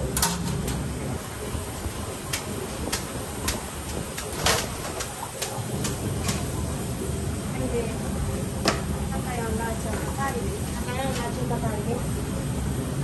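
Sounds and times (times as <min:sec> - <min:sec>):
utensils and dishes clinking: 0:00.0 - 0:00.9, 0:09.9 - 0:11.6
kitchen hum: 0:00.0 - 0:13.0.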